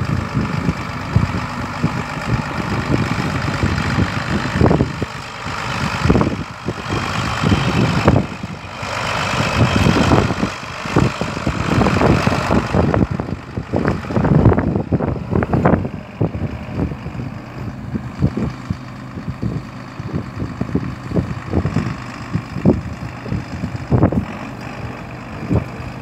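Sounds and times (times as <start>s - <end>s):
tractor diesel engine running: 0.0s - 26.0s.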